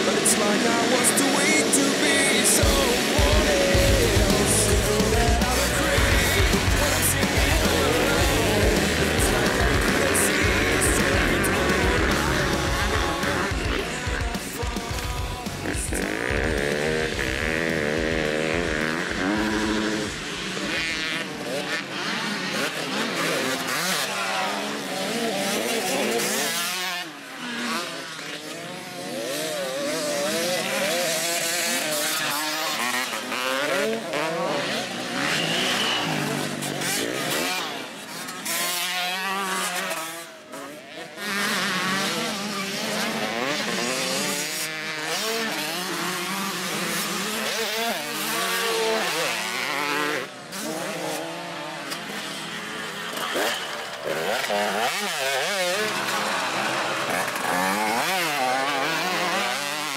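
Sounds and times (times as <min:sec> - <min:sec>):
motocross bike engines revving: 0:00.0 - 0:59.9.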